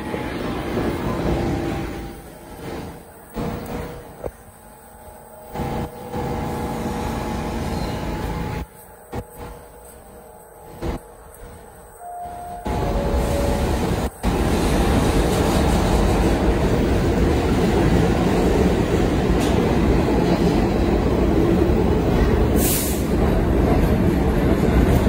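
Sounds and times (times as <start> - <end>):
subway train rumbling: 0.0 - 25.0
short hiss: 22.6 - 23.1.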